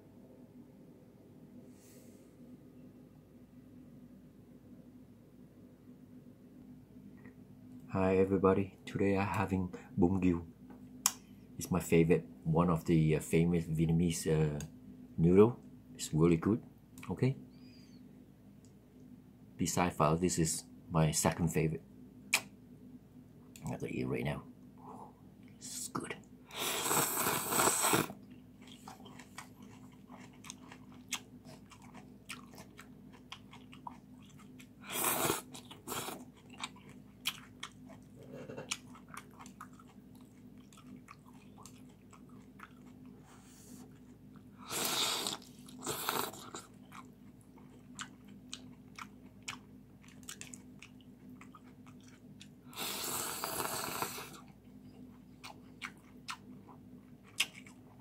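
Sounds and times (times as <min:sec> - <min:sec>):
noodles slurping: 0:26.5 - 0:28.2, 0:44.6 - 0:46.7, 0:52.7 - 0:54.4
person chewing: 0:26.6 - 0:58.0.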